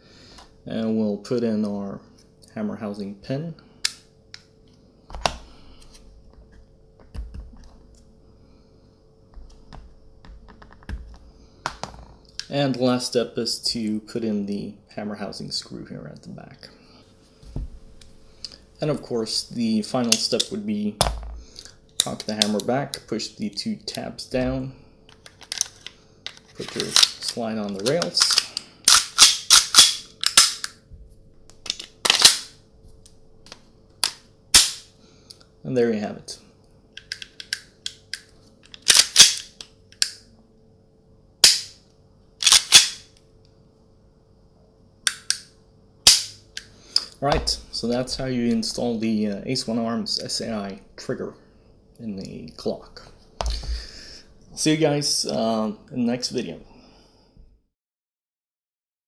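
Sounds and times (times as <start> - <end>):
pistol slide clicking and snapping: 28.2 - 30.8, 37.0 - 40.2, 41.4 - 41.7, 42.4 - 43.0, 45.1 - 45.5.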